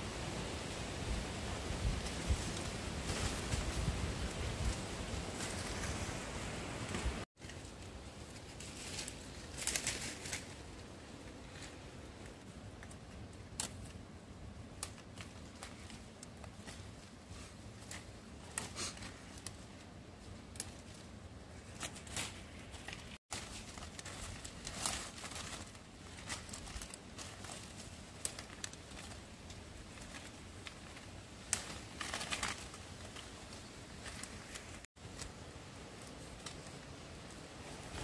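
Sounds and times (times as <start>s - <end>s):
rustling and crinkling: 1.3s - 38.0s.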